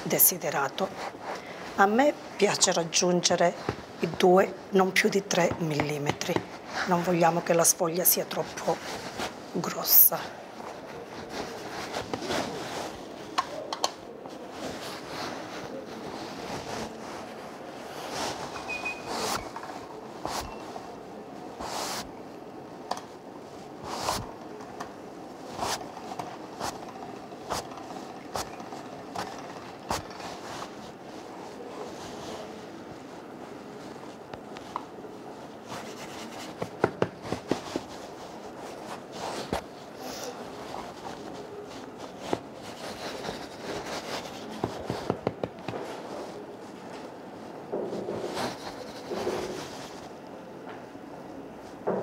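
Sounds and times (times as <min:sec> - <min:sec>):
hands patting and folding dough: 0:05.2 - 0:06.6, 0:23.8 - 0:47.1
light taps and pats on dough: 0:44.6 - 0:45.8.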